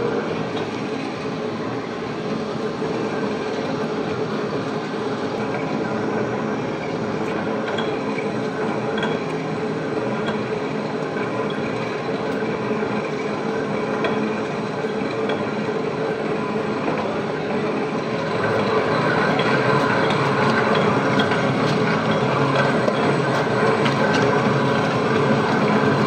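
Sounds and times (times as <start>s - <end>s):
stand mixer motor hum: 9.7s - 26.0s.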